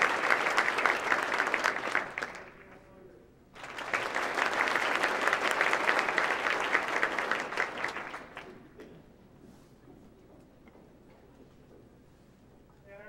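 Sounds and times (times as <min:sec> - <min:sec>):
audience applauding: 0:00.0 - 0:02.8, 0:03.6 - 0:08.8.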